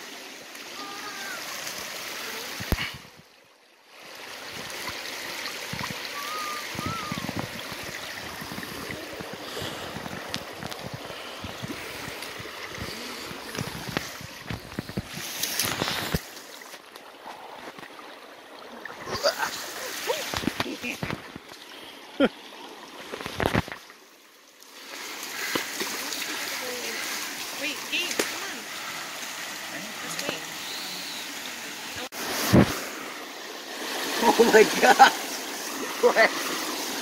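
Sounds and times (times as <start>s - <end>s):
creek water rushing over rock: 0.0s - 37.0s.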